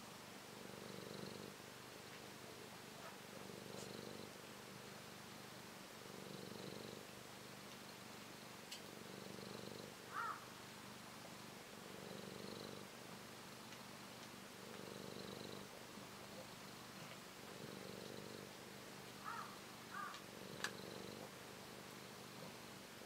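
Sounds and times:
cat purring: 0.5 - 23.0
faint click: 7.7 - 7.9, 8.7 - 8.9, 20.1 - 20.8.

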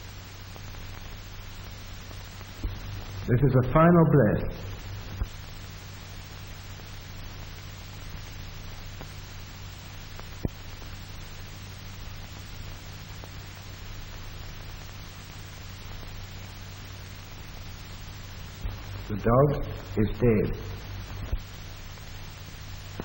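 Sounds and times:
film soundtrack hiss and hum: 0.0 - 23.0.

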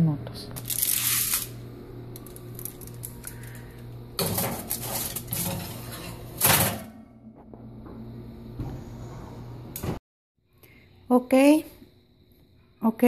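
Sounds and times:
steady low hum: 0.0 - 13.0
metal pan scraping oven rack: 4.2 - 7.0.

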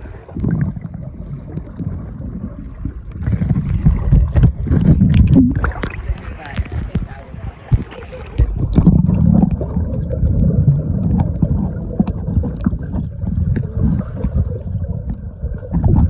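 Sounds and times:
underwater rumble of moving water: 0.0 - 16.0
small underwater clicks and pops: 1.5 - 16.0.

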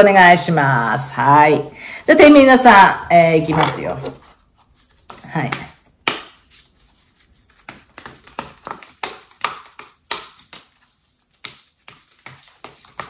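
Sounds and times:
cards shuffled by hand: 3.5 - 13.0.

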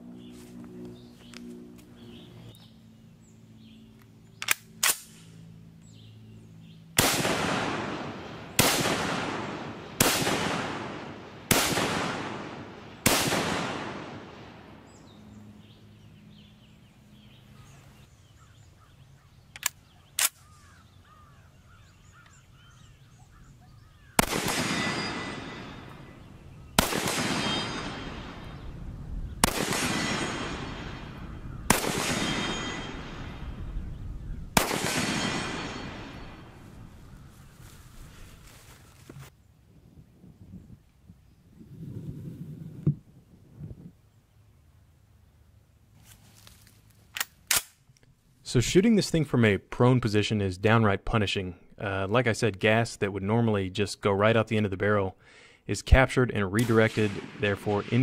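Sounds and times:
rifle shots with echo: 7.0 - 14.9, 24.1 - 36.7, 56.6 - 58.0.

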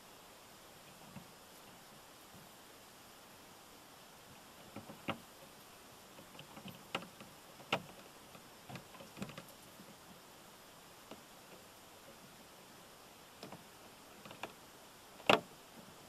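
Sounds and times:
wiper blade clicking and knocking: 6.2 - 9.6, 15.2 - 15.5.

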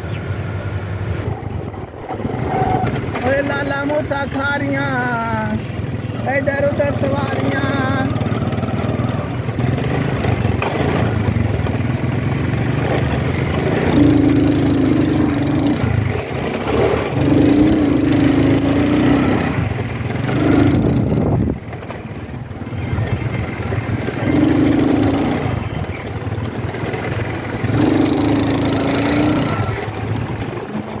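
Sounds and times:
small motorcycle engine running: 0.0 - 31.0.

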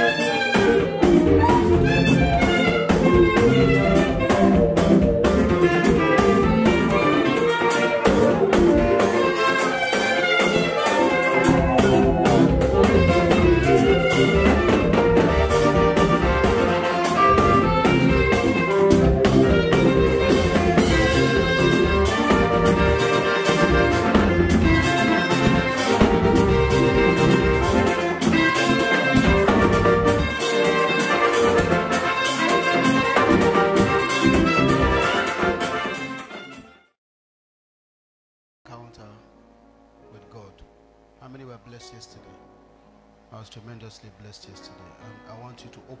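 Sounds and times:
praise band with guitars and drums: 0.0 - 36.7.

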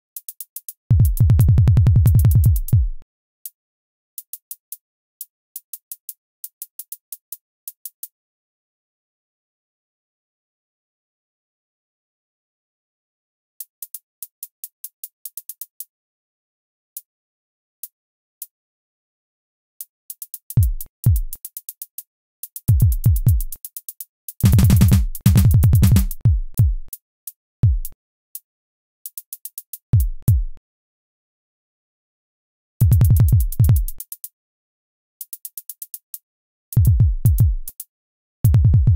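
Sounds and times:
drum machine bass thumps: 0.9 - 3.0, 20.6 - 21.4, 22.7 - 23.5, 24.4 - 26.9, 27.6 - 28.0, 30.0 - 30.6, 32.8 - 34.0, 36.8 - 37.7, 38.4 - 38.9
ticking hi-hats: 20.2 - 26.2.

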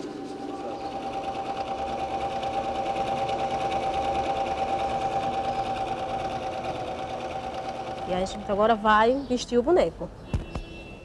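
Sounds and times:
sewing machine running: 0.0 - 9.0.

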